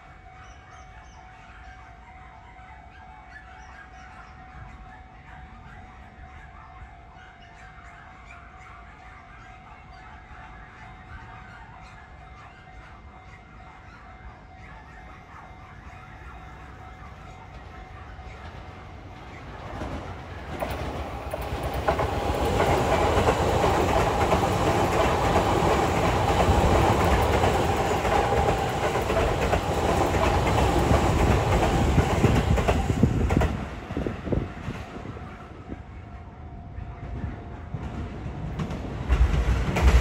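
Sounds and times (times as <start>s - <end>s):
electric train passing: 10.4s - 40.0s
wheels clacking over rails: 17.4s - 35.6s, 37.1s - 40.0s.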